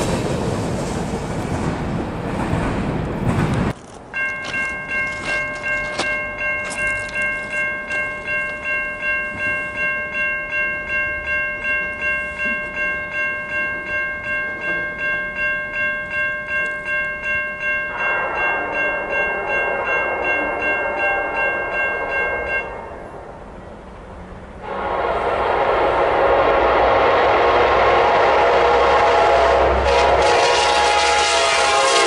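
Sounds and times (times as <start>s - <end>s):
approaching train rush: 0.0s - 3.9s, 17.6s - 32.0s
crossing warning bell ringing: 3.8s - 23.9s, 26.8s - 32.0s.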